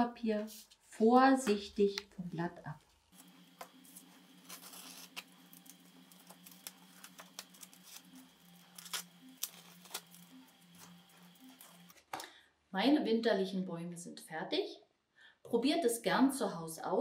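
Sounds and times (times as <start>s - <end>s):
tape peeling off paper: 3.2s - 12.0s.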